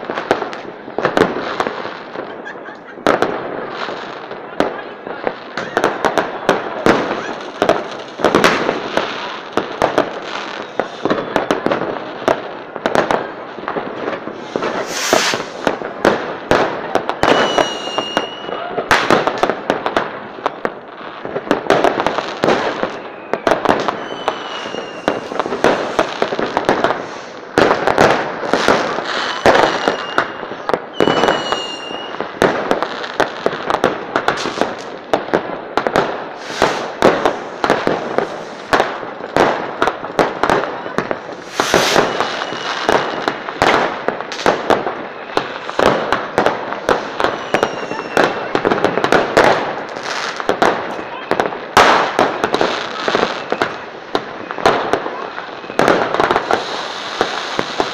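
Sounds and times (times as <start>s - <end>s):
fireworks bangs and crackling: 0.0s - 57.9s
high firework whistles: 5.5s - 11.9s, 14.1s - 15.9s, 17.1s - 19.2s, 22.4s - 32.4s, 36.0s - 39.6s, 40.4s - 50.6s, 51.8s - 57.9s
firework hiss: 5.8s - 13.1s, 13.8s - 18.4s, 21.8s - 35.2s, 35.8s - 40.0s, 41.0s - 51.0s, 55.7s - 57.9s.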